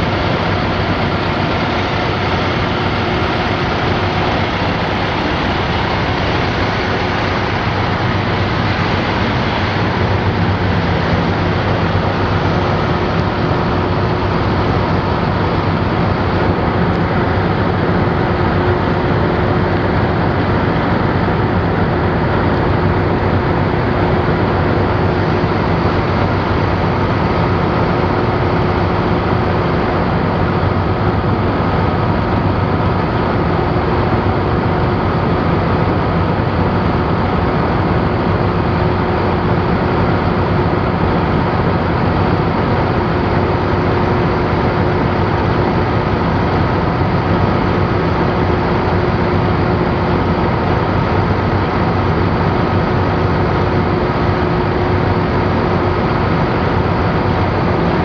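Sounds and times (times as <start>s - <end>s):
faint steady whines: 0.0s - 58.0s.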